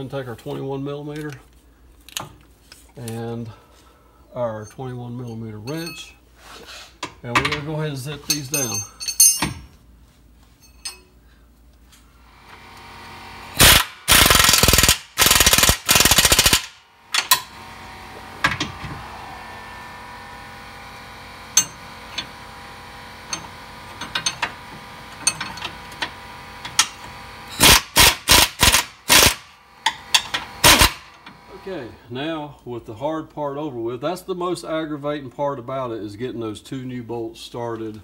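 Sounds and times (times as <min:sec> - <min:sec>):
steady machine hum: 0:07.2 - 0:32.5
air impact wrench hammering: 0:12.5 - 0:31.4.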